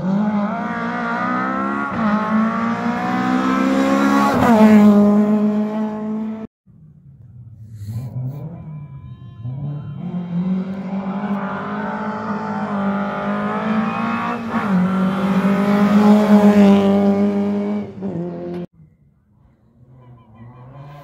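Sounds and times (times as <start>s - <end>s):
rally car engine at high revs: 0.0s - 6.5s, 7.8s - 8.8s, 9.5s - 18.7s.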